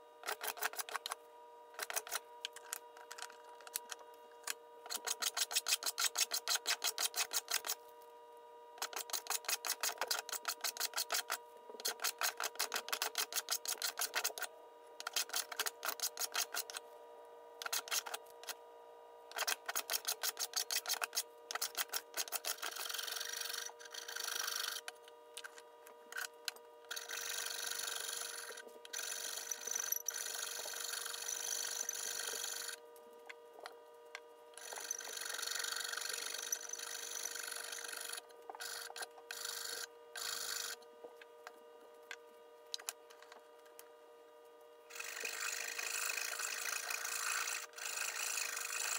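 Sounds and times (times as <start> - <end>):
file rasping wood: 4.9 - 7.8, 44.9 - 48.9.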